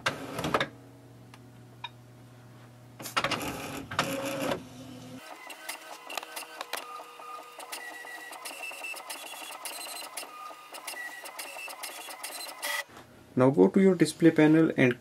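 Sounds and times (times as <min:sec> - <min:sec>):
printer motor whines: 0:05.2 - 0:12.8
printer clicking: 0:05.3 - 0:12.8.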